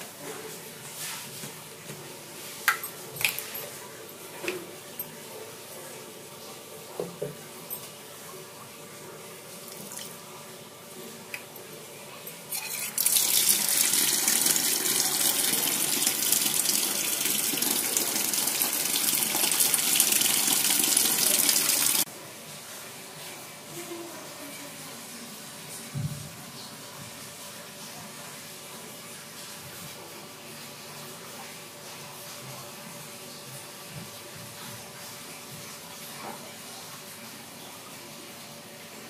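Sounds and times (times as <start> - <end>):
tap water splashing into basin: 2.6 - 3.5.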